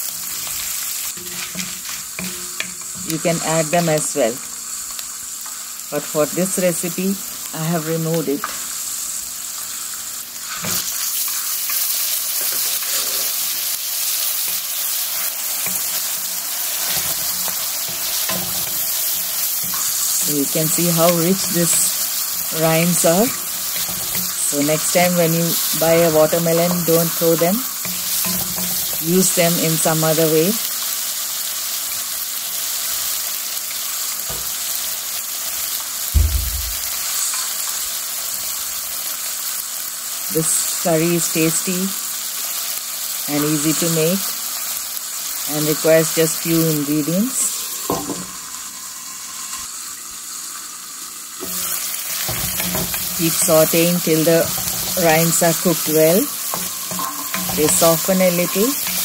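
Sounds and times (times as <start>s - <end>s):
food sizzling in oil: 0.0s - 59.0s
frying hiss in pan: 0.0s - 59.0s
wooden spatula stirring in pan: 51.4s - 59.0s.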